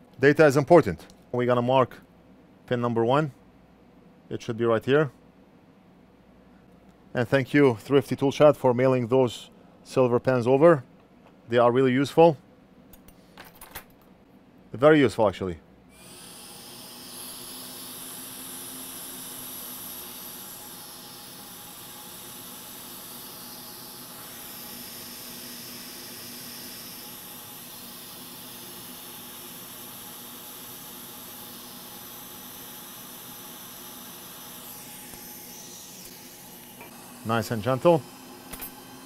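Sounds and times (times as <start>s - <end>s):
faint steady hum: 0.0s - 38.9s
hot air blower hissing: 15.9s - 39.0s.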